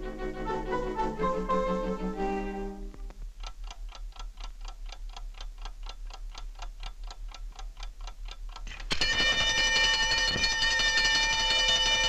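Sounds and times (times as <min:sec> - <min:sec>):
clock ticking: 0:03.2 - 0:12.0.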